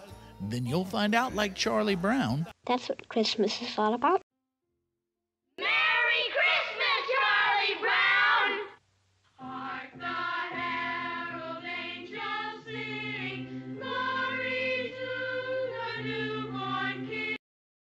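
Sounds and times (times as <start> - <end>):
children's choir singing: 5.6 - 8.8, 9.4 - 17.4.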